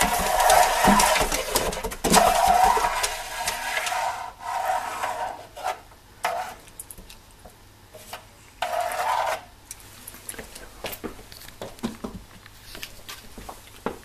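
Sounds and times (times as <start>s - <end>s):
cat wheel rolling: 0.0s - 5.5s.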